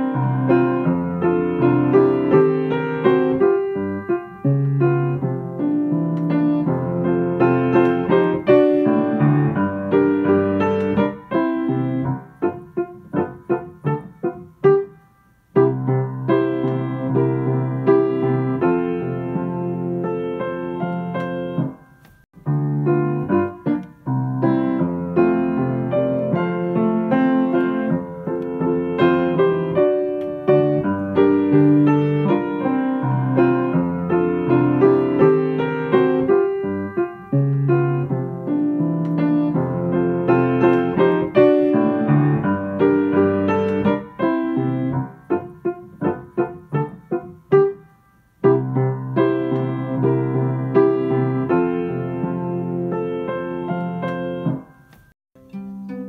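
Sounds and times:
piano music: 0.0s - 56.0s.

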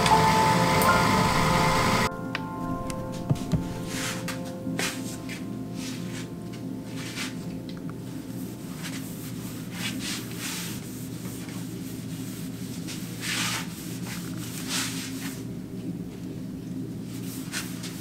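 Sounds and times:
pad wiping along wood: 8.4s - 15.4s.

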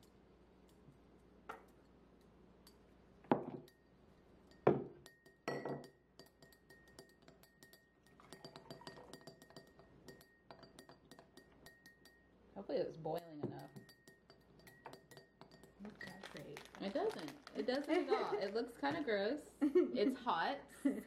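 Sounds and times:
glassware clinking: 2.6s - 12.3s, 13.4s - 17.2s.

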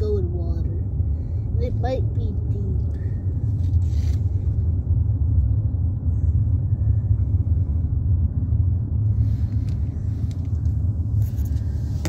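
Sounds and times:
car driving low rumble: 0.0s - 12.0s.

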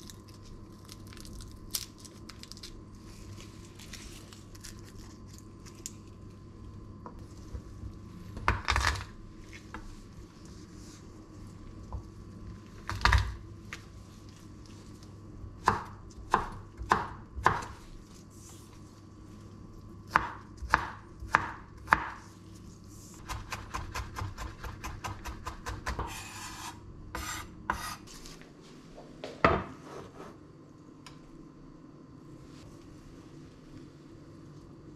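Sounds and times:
knife chopping on cutting board: 20.1s - 22.2s, 23.2s - 28.0s
knife scraping board: 25.9s - 28.2s, 29.8s - 30.4s.

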